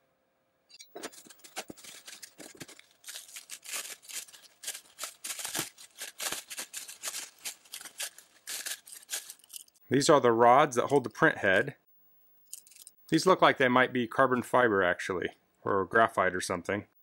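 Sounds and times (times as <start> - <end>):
bubble wrap crinkling: 0.9 - 9.8, 12.5 - 12.9.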